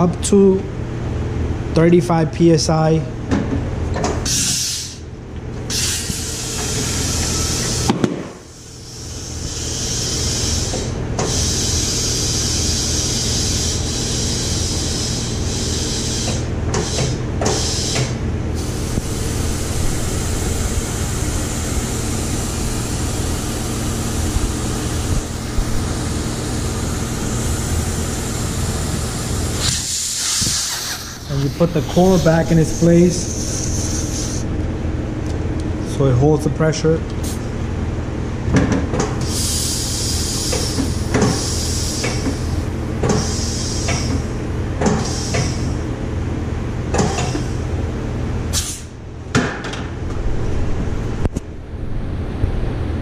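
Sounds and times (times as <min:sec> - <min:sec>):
steady low hum: 0:00.0 - 0:53.0
compressed air hissing through valve: 0:04.2 - 0:05.0, 0:05.7 - 0:23.9, 0:24.6 - 0:34.5, 0:39.2 - 0:44.2, 0:45.0 - 0:45.8, 0:48.5 - 0:48.9.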